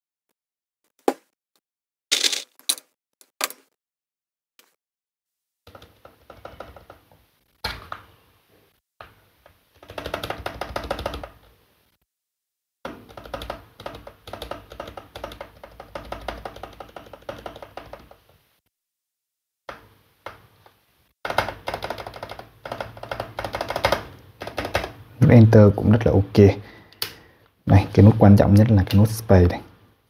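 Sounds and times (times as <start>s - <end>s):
keyboard key presses: 12.9s - 18.2s, 21.2s - 25.0s.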